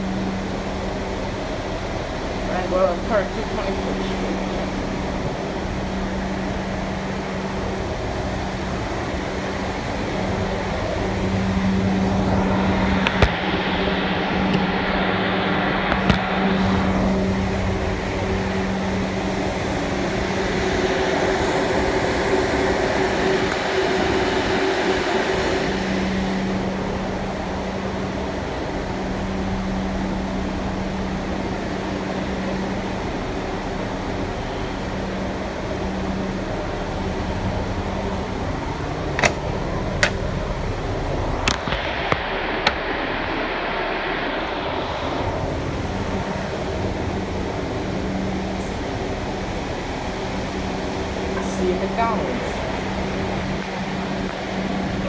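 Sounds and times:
air-conditioning hum: 0.0 - 55.0
steady low tone: 0.0 - 55.0
subway train running noise: 0.0 - 55.0
sharp clicks of train: 39.1 - 40.3, 41.4 - 42.8.

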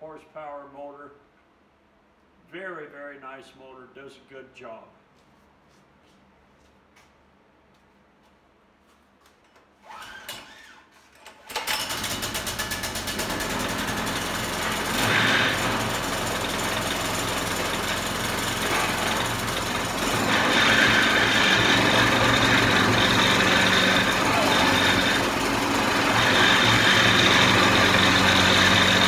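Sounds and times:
engine pull-start crank: 9.8 - 29.0
small engine running: 11.7 - 29.0.

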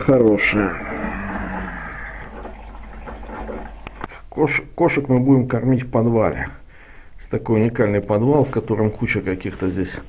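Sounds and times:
low steady hum: 0.0 - 10.0
water trickling and bubbling: 0.3 - 4.3.

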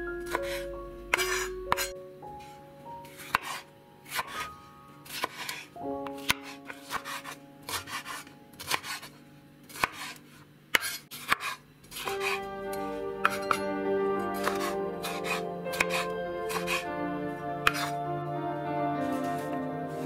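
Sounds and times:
background music: 0.0 - 9.6, 12.0 - 20.0
knife slicing pepper on board: 6.2 - 9.1, 9.7 - 10.2, 10.8 - 12.4, 14.4 - 16.9, 17.6 - 18.0.

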